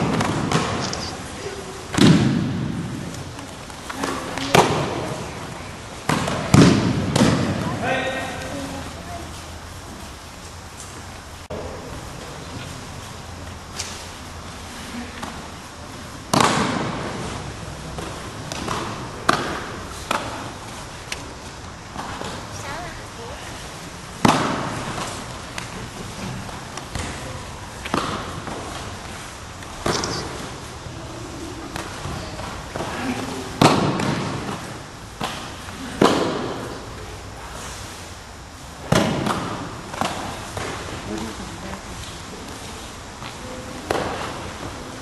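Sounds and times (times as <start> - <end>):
body slapping onto mat: 0.0 - 1.0
sharp slaps on mat: 1.9 - 3.2, 16.3 - 17.3.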